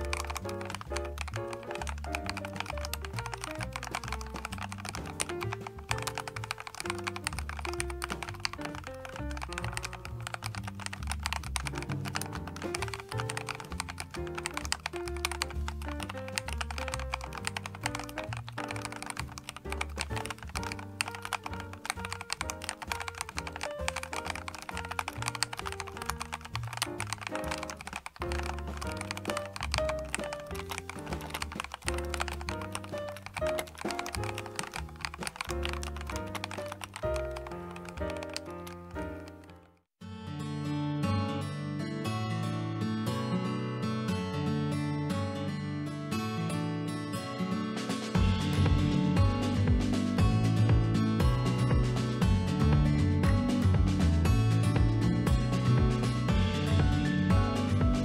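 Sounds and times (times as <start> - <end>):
mechanical keyboard typing: 0.0 - 39.9
background music with bass: 48.2 - 58.0.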